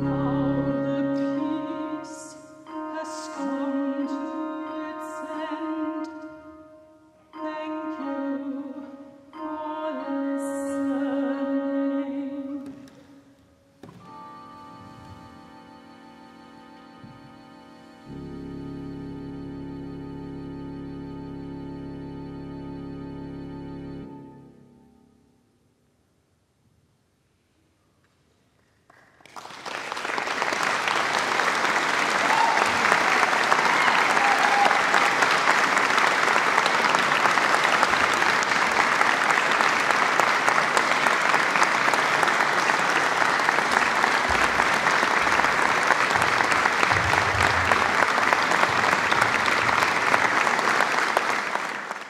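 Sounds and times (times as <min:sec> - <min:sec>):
audience applauding: 0:28.9 - 0:52.0.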